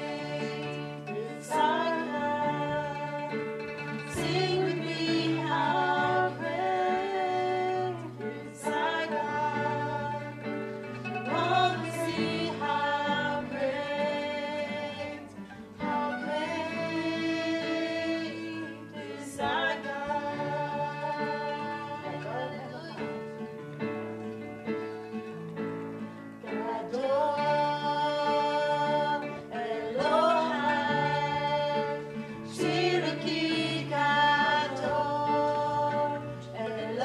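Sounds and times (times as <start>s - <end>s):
woman singing into microphone: 0.0s - 23.3s, 26.4s - 37.0s
digital piano: 0.0s - 37.0s
plucked string instrument: 0.0s - 37.0s.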